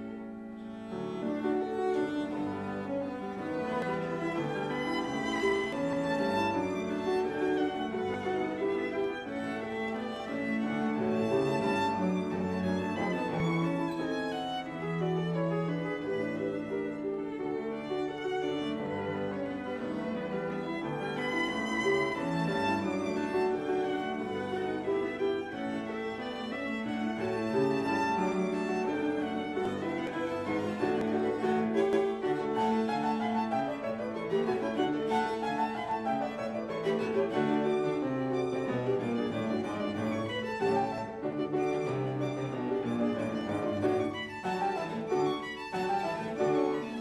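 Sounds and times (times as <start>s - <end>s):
classical string music with violin: 0.0s - 47.0s
piano accompaniment: 0.0s - 47.0s.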